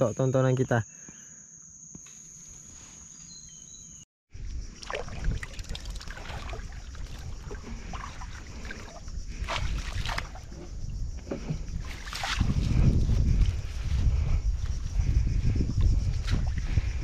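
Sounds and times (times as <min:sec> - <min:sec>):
wind rumble on microphone: 0:04.3 - 0:17.0
net hauled out of water: 0:04.8 - 0:10.5
water splashing: 0:04.8 - 0:10.6, 0:11.8 - 0:12.6.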